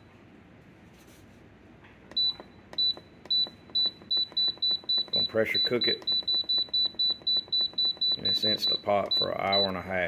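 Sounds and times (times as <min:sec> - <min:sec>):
keypad beeps: 0:02.1 - 0:10.0.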